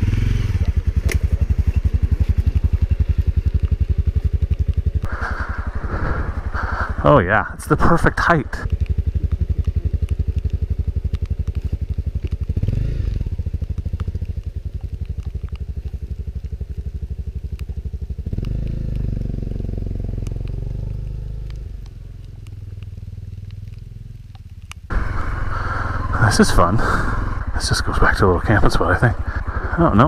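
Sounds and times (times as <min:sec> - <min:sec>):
motorcycle engine at low revs: 0:00.0 - 0:30.0.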